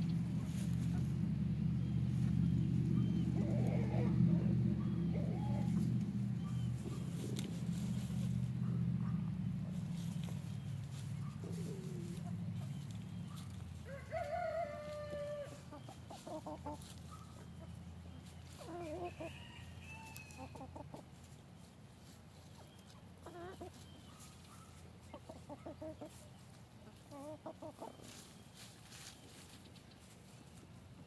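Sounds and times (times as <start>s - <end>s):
low hum: 0.0s - 13.7s
chickens clucking: 0.0s - 31.0s.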